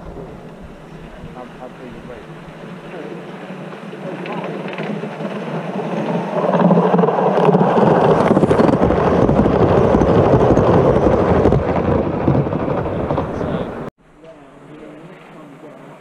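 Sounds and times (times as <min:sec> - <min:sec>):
model train wheels rumbling on rails: 0:02.8 - 0:13.9.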